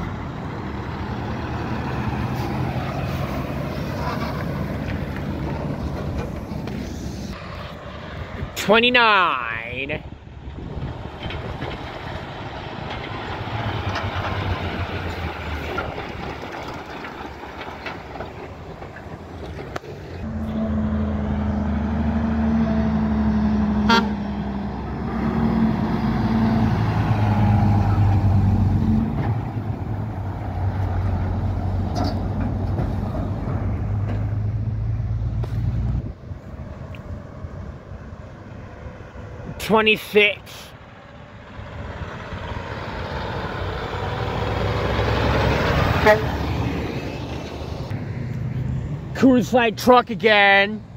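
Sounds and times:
diesel trucks driving past: 0:00.0 - 0:50.9
truck horn blasts: 0:20.2 - 0:21.1, 0:23.7 - 0:24.4, 0:45.9 - 0:46.4.

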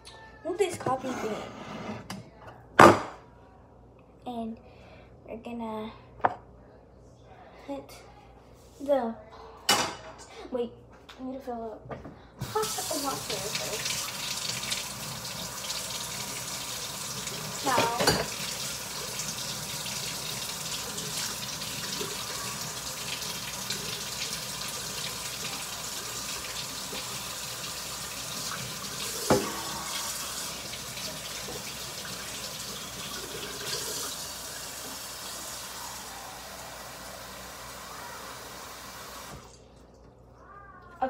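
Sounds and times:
faucet water running into pot: 0:12.4 - 0:39.6.

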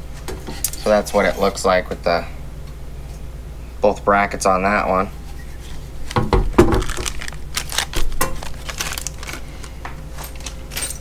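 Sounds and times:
crinkling: 0:05.5 - 0:11.0.

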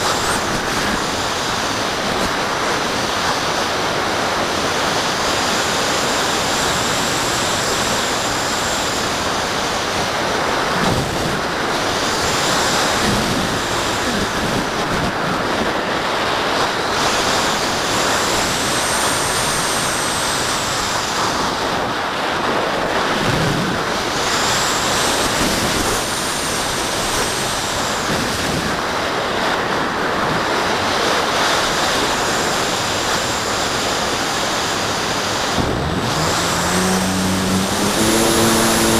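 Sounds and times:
airflow rushing over microphone: 0:00.0 - 0:03.6, 0:32.5 - 0:38.9.

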